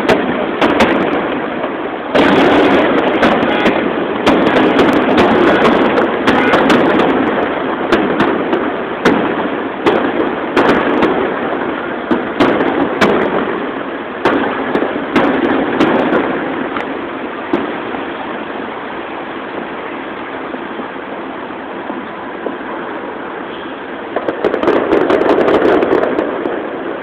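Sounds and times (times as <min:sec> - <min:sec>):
fireworks bursting with sharp bangs: 0:00.0 - 0:27.0
steady din: 0:02.1 - 0:11.2.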